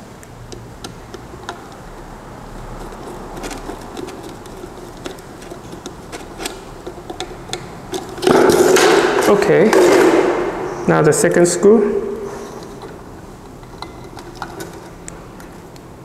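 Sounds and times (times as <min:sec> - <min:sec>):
screwdriver clicks and scrapes: 0:02.8 - 0:08.9, 0:12.4 - 0:15.1
sudden loud sound: 0:08.3 - 0:11.0.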